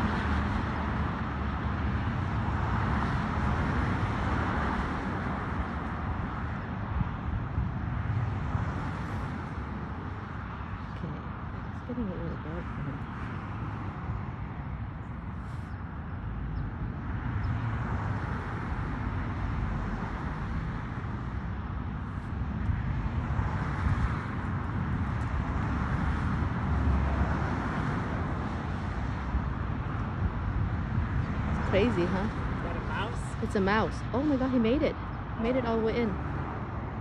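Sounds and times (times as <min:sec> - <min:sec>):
passing cars rushing: 0:00.0 - 0:37.0.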